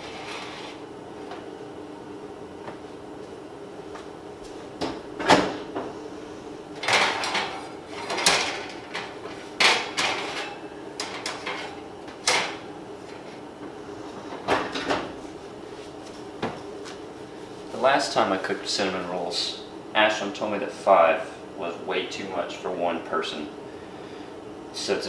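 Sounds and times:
oven door opening and shutting: 4.8s - 5.8s.

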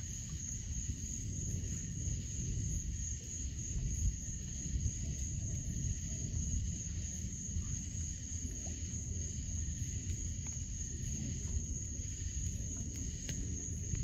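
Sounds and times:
steady low rumble: 0.0s - 14.0s
faint ticks: 7.6s - 14.0s.

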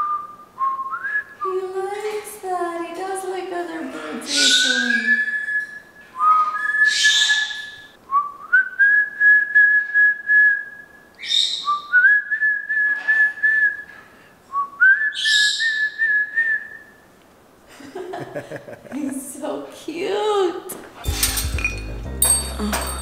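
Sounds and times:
person whistling: 0.0s - 1.4s.

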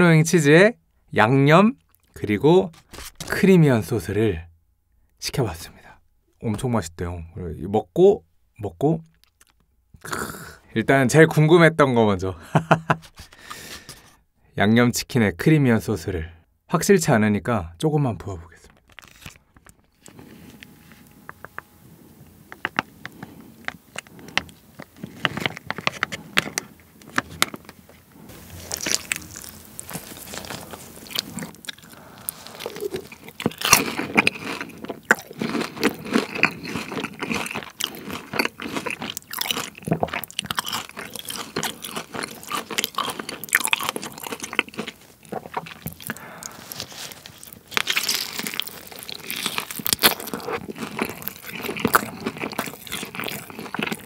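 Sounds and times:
crunching bites and chewing: 9.1s - 10.4s, 18.7s - 20.7s, 22.6s - 54.0s
soft handling sounds: 18.5s - 33.2s, 45.0s - 48.9s.

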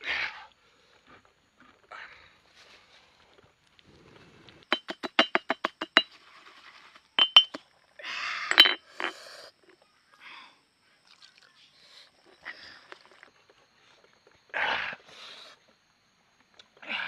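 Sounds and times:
pestle scraping paste in bowl: 4.7s - 6.1s
stone pestle pounding in mortar: 4.7s - 6.1s, 7.2s - 7.6s.

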